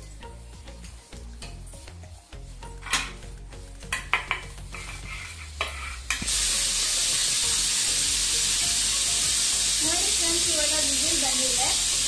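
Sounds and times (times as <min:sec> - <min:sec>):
spoon clinking on steel plates: 0:03.9 - 0:04.5
pressure cooker whistle hissing: 0:06.2 - 0:12.0.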